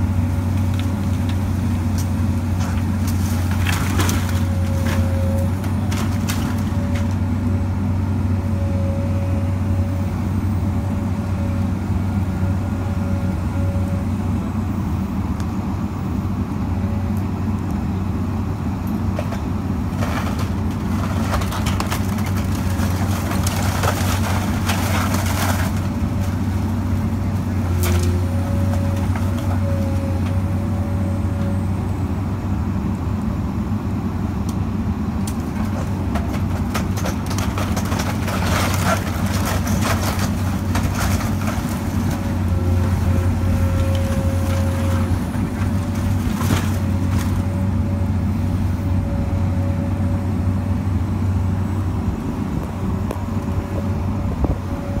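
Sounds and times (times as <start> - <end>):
excavator diesel engine running: 0.0 - 55.0
splintering timber crashing: 35.6 - 42.2.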